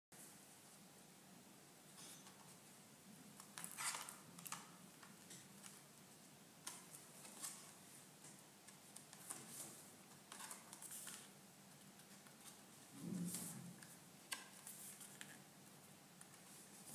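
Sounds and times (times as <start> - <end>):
book pages rustling: 6.7 - 7.8, 8.6 - 15.5.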